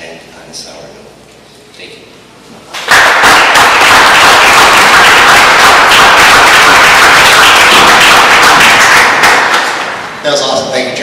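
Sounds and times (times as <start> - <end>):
audience applauding: 2.8 - 10.1.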